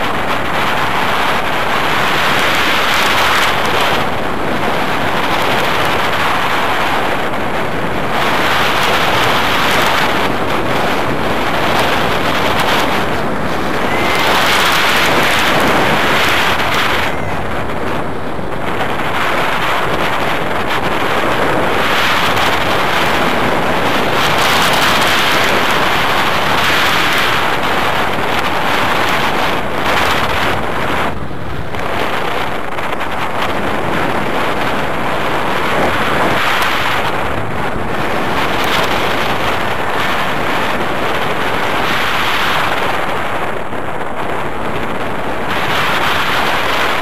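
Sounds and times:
wind rushing on microphone: 0.0s - 47.0s.

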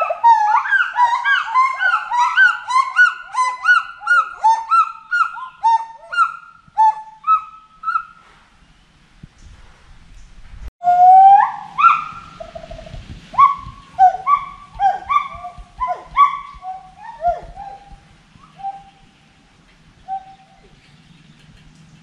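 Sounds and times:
gibbon whooping: 0.0s - 8.0s, 10.8s - 19.0s.

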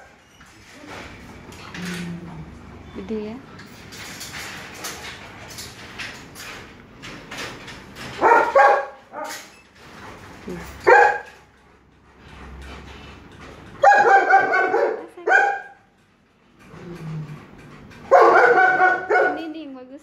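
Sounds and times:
dog barking: 8.2s - 9.4s, 10.8s - 11.4s, 13.8s - 15.9s, 18.1s - 19.6s.

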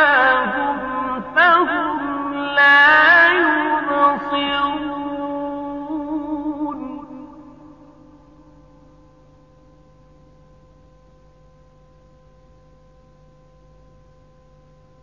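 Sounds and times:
reciter's voice echo: 0.0s - 7.8s
faint steady tonal hum: 0.0s - 15.0s.

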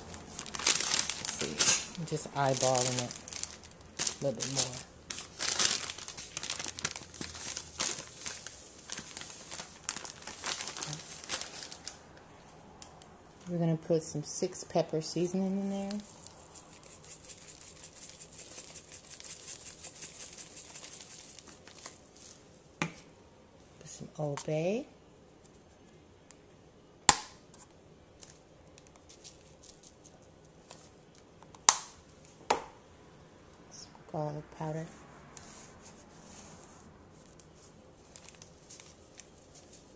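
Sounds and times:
bag crinkling and rustling: 0.0s - 12.0s, 15.8s - 22.4s, 37.2s - 39.9s.

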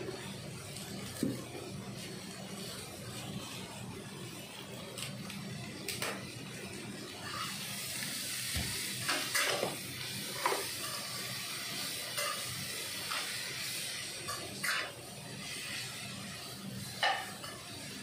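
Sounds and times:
vegetables sizzling in a wok: 0.0s - 18.0s
spatula scraping a wok: 7.2s - 17.9s.

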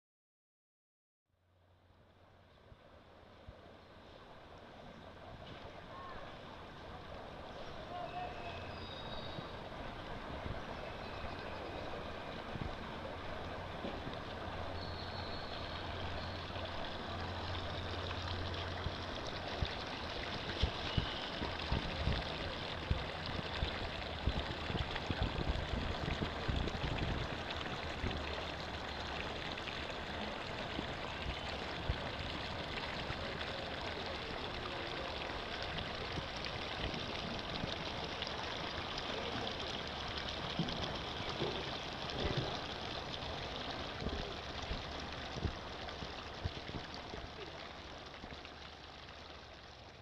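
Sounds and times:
water spilling over pool edge: 3.6s - 50.0s.

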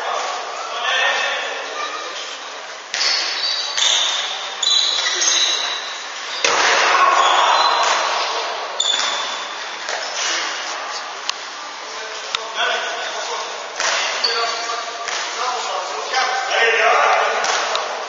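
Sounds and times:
shoes squeaking on wooden court: 2.9s - 8.2s, 8.8s - 10.4s
players shouting: 6.4s - 9.0s
ball bouncing: 7.3s - 10.0s.

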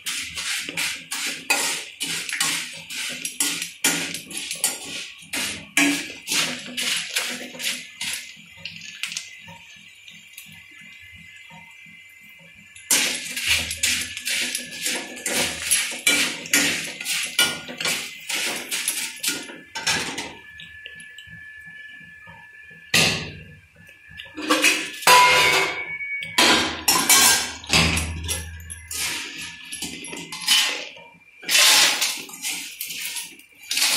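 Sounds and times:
metal skimmer scraping fried flakes: 0.0s - 9.3s, 12.9s - 20.3s, 24.3s - 25.6s, 28.6s - 33.9s
metal pans and utensils clattering: 0.0s - 9.7s, 12.8s - 21.2s, 22.9s - 33.9s.

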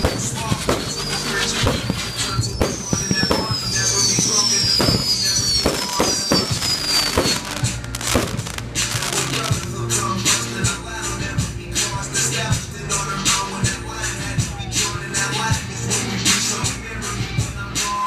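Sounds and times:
firework whistles falling in pitch: 0.0s - 9.6s
fireworks bangs and crackles: 0.0s - 10.7s
music playing: 0.0s - 18.0s.

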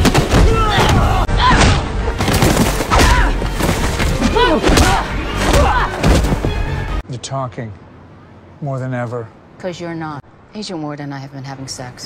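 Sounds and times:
punches and body blows: 0.0s - 6.7s.

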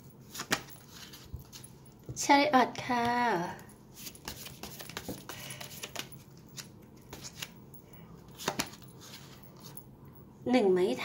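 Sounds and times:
cards being shuffled: 0.2s - 1.7s, 4.0s - 7.6s, 8.3s - 9.8s.

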